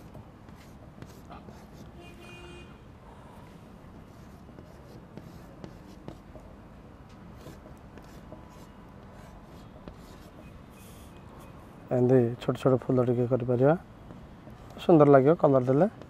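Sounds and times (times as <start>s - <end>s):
chalk tapping on blackboard: 0.0s - 1.9s, 4.0s - 6.5s, 7.4s - 11.1s
chalk scratching on blackboard: 0.0s - 2.0s, 4.0s - 6.5s, 7.4s - 11.6s.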